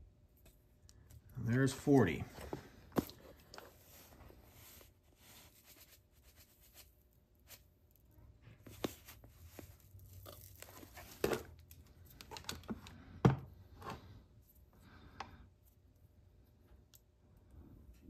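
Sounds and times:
rustling and clicks of handling: 7.9s - 13.2s.

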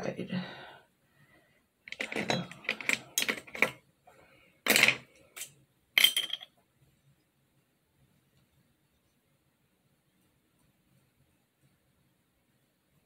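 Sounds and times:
small hard objects clinking: 4.7s - 6.5s.

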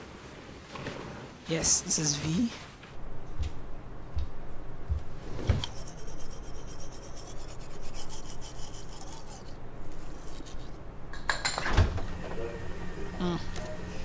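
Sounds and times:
rapid even rasping: 5.6s - 10.8s.

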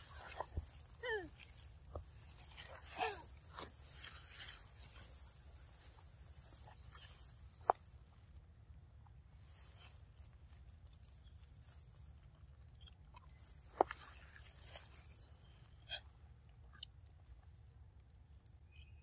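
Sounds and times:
rustling and fruit handling: 0.0s - 8.4s, 9.4s - 15.7s.

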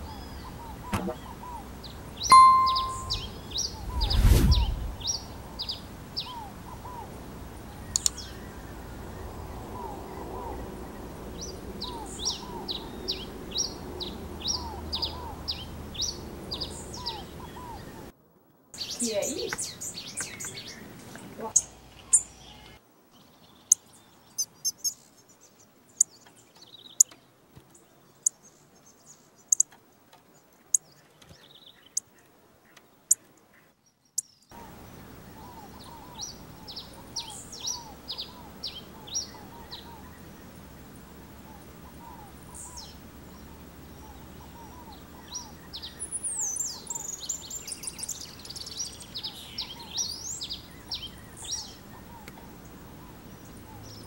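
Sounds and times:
finch twittering song: 0.0s - 18.1s, 18.8s - 29.7s, 33.9s - 54.0s
finch high chips: 2.3s - 3.3s
lower repeated chirp: 2.3s - 4.8s.

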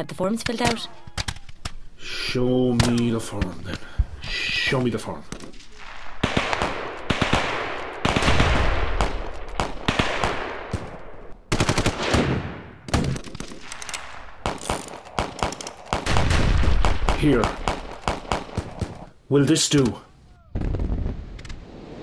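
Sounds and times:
single gunshots: 5.3s - 13.7s, 14.4s - 19.0s
machine-gun fire: 5.3s - 13.8s, 14.4s - 19.0s.

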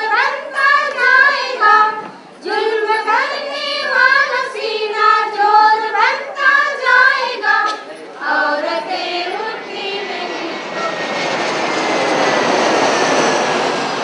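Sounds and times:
jet airliner passing overhead: 8.3s - 14.0s.

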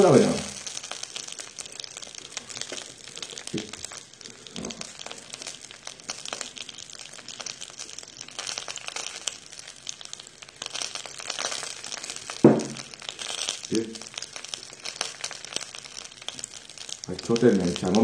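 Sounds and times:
meat sizzling on a griddle: 0.0s - 18.0s
soft thumps: 12.4s - 12.8s.

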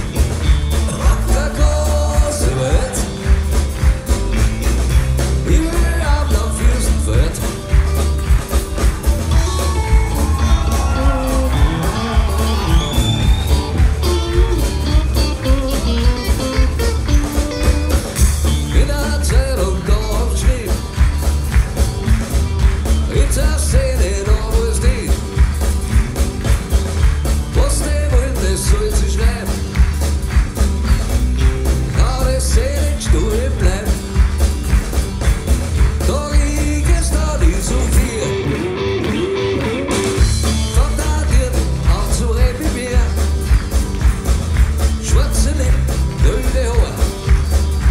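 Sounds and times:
acoustic guitars: 0.0s - 47.9s
electric bass: 0.0s - 47.9s
live band playing: 0.0s - 47.9s
man singing: 0.7s - 3.5s, 5.3s - 7.9s, 18.4s - 21.0s, 23.0s - 25.4s, 27.5s - 29.8s, 31.9s - 34.3s, 35.9s - 38.9s, 40.4s - 43.4s, 45.0s - 47.3s.

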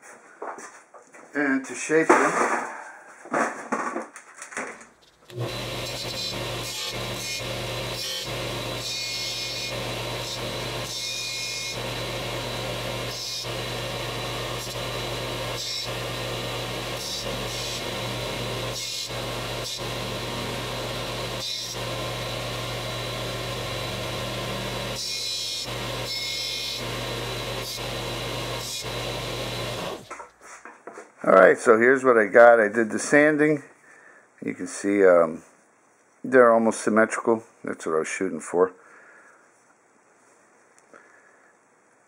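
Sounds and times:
metal rods grinding on sanding disc: 5.3s - 30.1s
sander motor hum: 5.3s - 30.3s.

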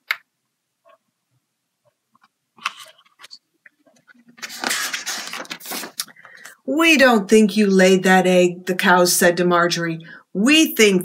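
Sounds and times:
book pages rustling: 2.2s - 6.5s.

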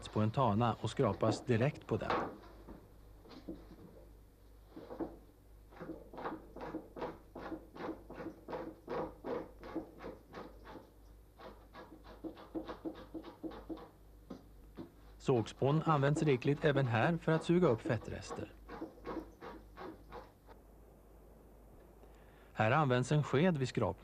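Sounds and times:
hand scraper rasping on skin: 5.7s - 13.9s, 15.2s - 20.4s.

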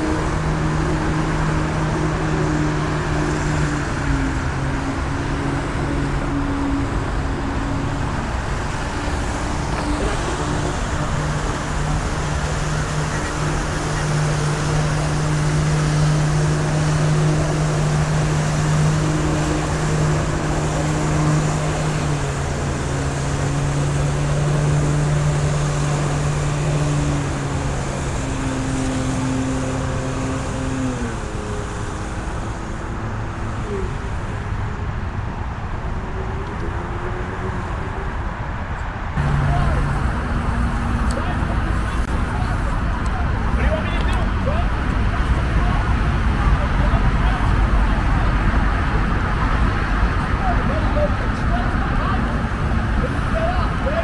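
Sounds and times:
water jets hissing and splashing: 0.0s - 33.4s
jet ski engine running hard: 0.0s - 35.3s, 39.2s - 54.0s.

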